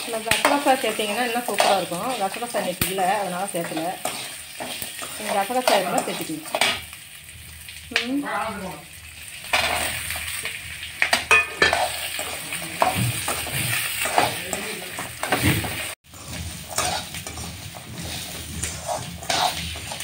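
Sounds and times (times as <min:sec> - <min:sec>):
food sizzling in oil: 0:00.0 - 0:20.0
spoon scraping metal pan: 0:00.1 - 0:06.9, 0:11.0 - 0:20.0.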